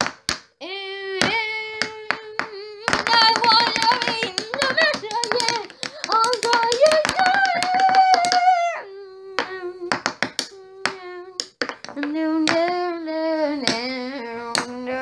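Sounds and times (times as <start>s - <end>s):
hand claps: 0.0s - 0.5s, 1.2s - 8.6s, 9.4s - 12.7s
child singing: 0.6s - 11.4s, 12.0s - 15.0s.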